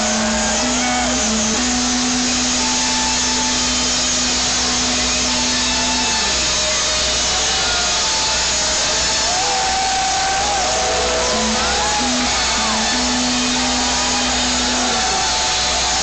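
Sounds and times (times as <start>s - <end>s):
low droning note: 0.0s - 6.6s, 10.9s - 15.3s
crowd cheering and screaming: 0.0s - 16.0s.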